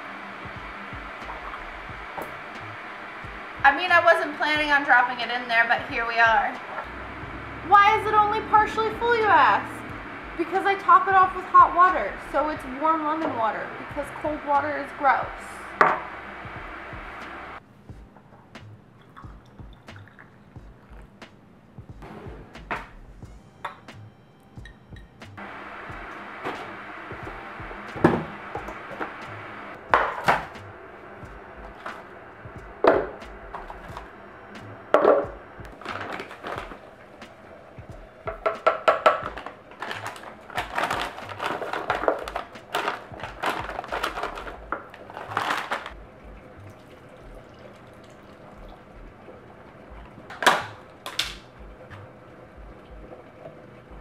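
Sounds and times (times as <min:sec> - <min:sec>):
containers clattering: 0:29.9 - 0:30.6, 0:34.9 - 0:37.5, 0:38.2 - 0:46.0, 0:50.0 - 0:52.0
blender parts knocking on countertop: 0:38.3 - 0:44.8.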